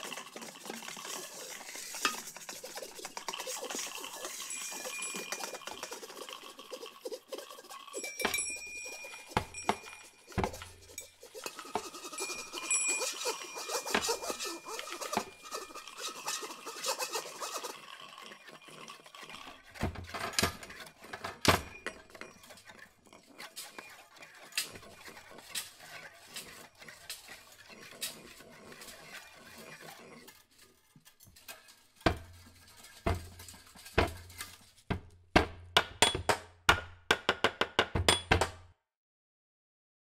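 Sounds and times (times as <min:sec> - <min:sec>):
hands knocking on wood: 0:34.9 - 0:38.6.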